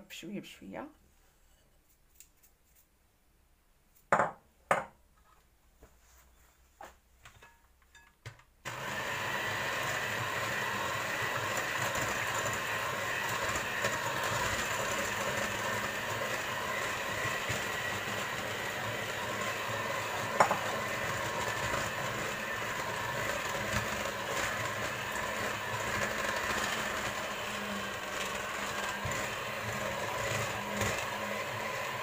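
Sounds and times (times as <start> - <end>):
electric hand mixer running: 8.6 - 32.0.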